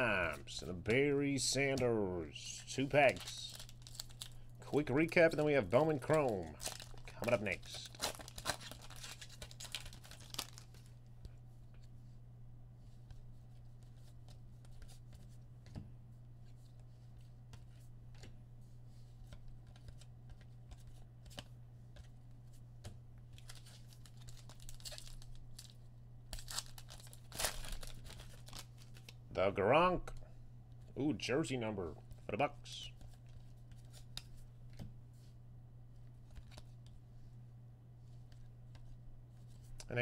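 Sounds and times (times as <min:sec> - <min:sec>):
low steady hum: 0:00.0 - 0:40.0
foil wrappers tearing and crinkling: 0:03.0 - 0:10.7, 0:23.4 - 0:29.2.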